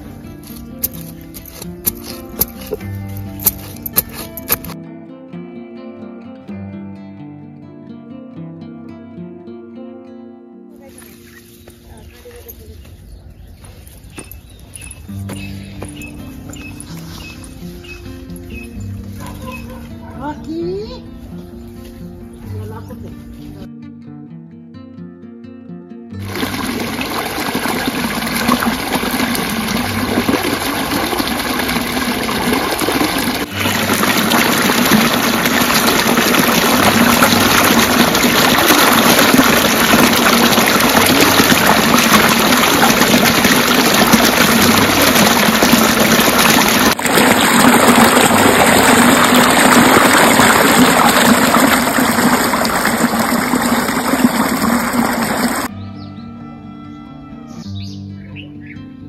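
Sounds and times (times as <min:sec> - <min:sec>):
water gushing along a channel: 0:00.0 - 0:04.8, 0:26.2 - 0:55.7.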